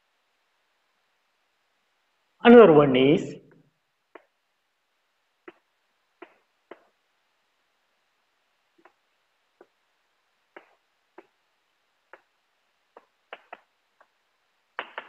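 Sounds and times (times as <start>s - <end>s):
chalk tapping on blackboard: 10.5s - 11.4s, 12.9s - 14.2s.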